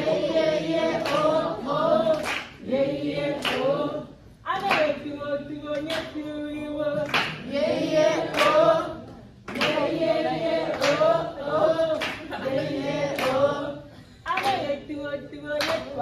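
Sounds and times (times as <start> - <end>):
group singing in unison: 0.0 - 16.0
hand claps: 1.0 - 2.6, 3.3 - 3.8, 4.5 - 5.0, 5.7 - 6.3, 6.9 - 7.5, 8.2 - 10.0, 10.7 - 11.2, 11.9 - 12.4, 13.1 - 13.5, 14.3 - 14.8, 15.5 - 16.0.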